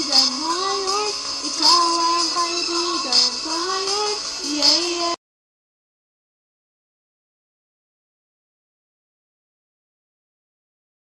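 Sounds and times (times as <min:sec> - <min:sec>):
person singing: 0:00.0 - 0:05.2
pop backing music: 0:00.0 - 0:05.2.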